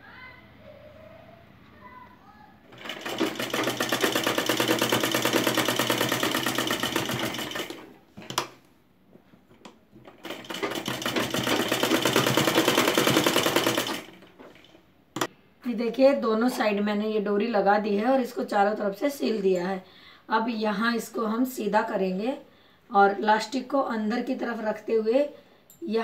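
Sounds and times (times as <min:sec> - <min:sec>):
sewing machine stitching: 0:02.7 - 0:08.5, 0:10.0 - 0:15.3.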